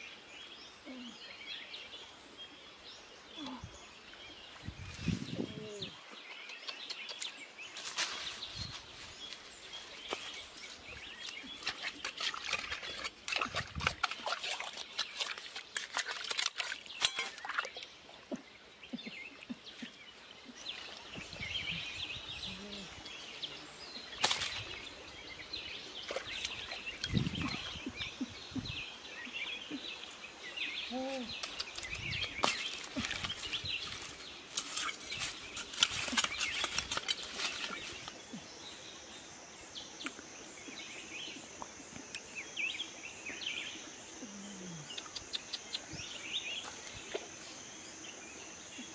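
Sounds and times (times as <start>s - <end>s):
birds chirping: 0.0s - 48.9s
dry leaves and roots rustling: 7.3s - 17.8s, 30.9s - 38.3s
hands digging in mud: 11.2s - 17.7s, 31.2s - 38.1s
fish flopping on dry leaves: 32.4s - 38.2s.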